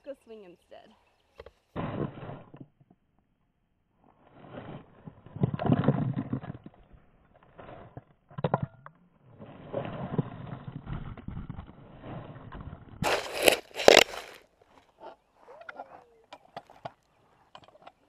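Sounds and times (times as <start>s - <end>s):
cloth rubbing on camera microphone: 4.2s - 5.0s.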